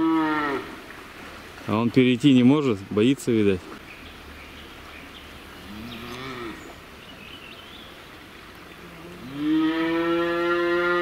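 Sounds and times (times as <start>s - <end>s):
calf mooing: 0.0s - 0.7s, 5.7s - 6.6s, 9.2s - 11.0s.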